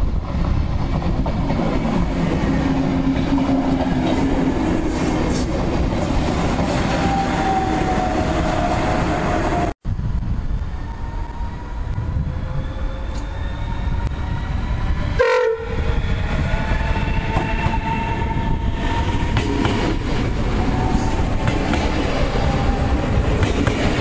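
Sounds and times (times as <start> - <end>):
train wheel rumble: 0.0 - 24.0
train horn blast: 15.2 - 15.9.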